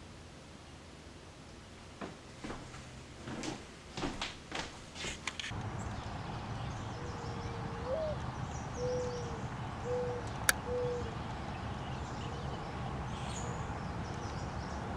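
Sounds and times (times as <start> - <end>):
dove cooing: 6.9 - 11.2.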